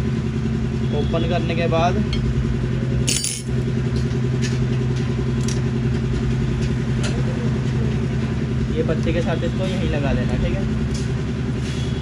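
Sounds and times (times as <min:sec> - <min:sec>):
low mechanical hum: 0:00.0 - 0:12.0
metallic tool rattle: 0:03.1 - 0:03.5
tools clinking: 0:03.1 - 0:03.6.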